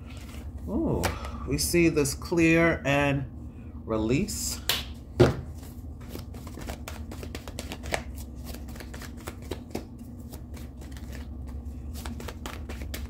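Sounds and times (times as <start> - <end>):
steady low hum: 0.0 - 13.0
playing cards being shuffled: 5.4 - 13.0.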